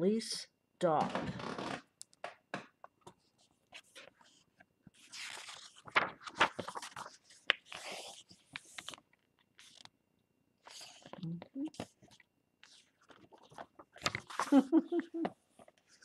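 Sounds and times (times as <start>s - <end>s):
book pages rustling: 2.9s - 10.0s, 10.6s - 16.0s.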